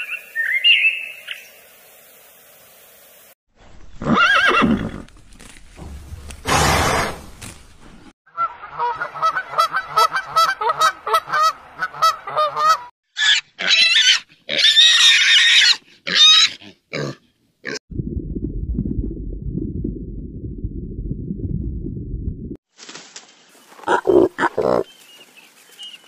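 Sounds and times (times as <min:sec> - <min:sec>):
pig squealing: 0:13.2 - 0:17.8
steady low rumble: 0:17.9 - 0:22.6.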